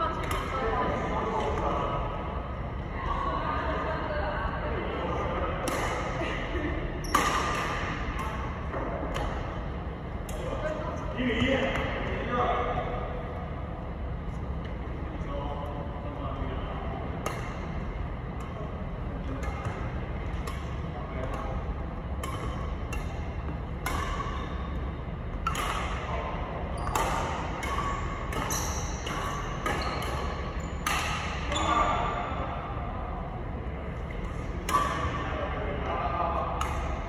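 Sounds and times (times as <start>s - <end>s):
steady low hum: 0.0s - 37.0s
rackets striking shuttlecock: 7.0s - 9.6s, 17.2s - 18.6s, 19.3s - 31.9s, 34.2s - 35.3s, 36.5s - 37.0s.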